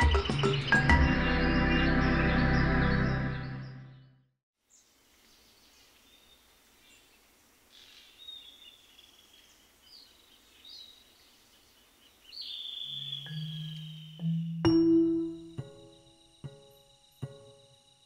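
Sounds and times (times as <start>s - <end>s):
soft hiss: 4.6s - 12.6s
high bird chirps: 12.3s - 18.0s
high whistling calls: 12.4s - 17.6s
low steady tones: 13.2s - 18.0s.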